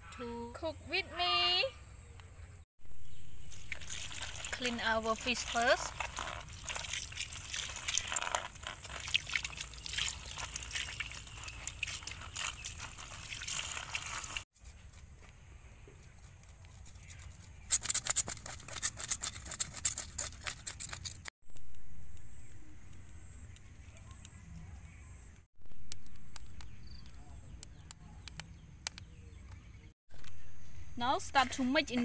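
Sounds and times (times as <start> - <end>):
water splashing and trickling: 3.4 - 14.5.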